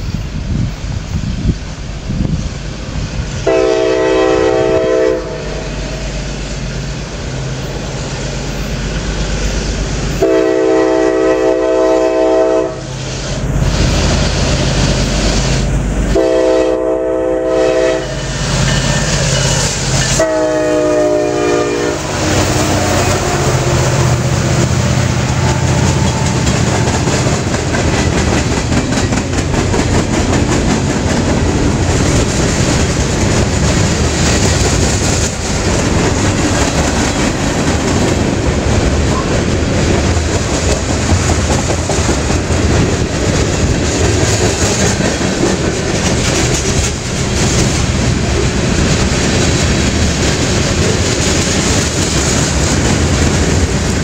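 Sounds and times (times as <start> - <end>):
locomotive air horn: 3.4 - 5.8, 10.1 - 13.2, 16.1 - 18.5, 19.7 - 27.4
diesel engine rumbling: 12.7 - 54.0
train wheels clattering on rails: 17.4 - 54.0.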